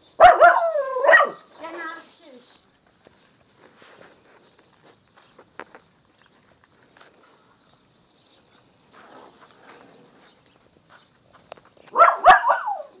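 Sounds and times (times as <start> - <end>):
paws scuffling on stone paving: 1.3 - 12.6
puppy yelping: 11.9 - 12.9.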